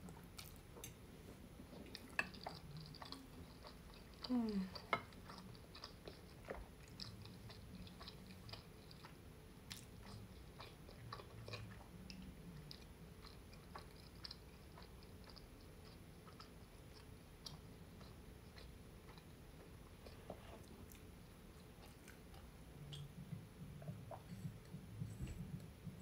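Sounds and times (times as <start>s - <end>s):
low room hum: 0.0s - 26.0s
wet chewing mouth clicks: 1.8s - 19.3s.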